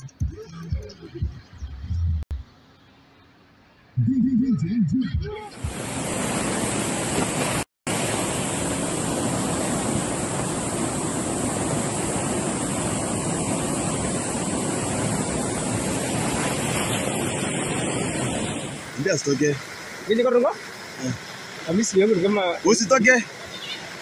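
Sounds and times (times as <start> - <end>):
river water rushing: 5.5 - 24.0.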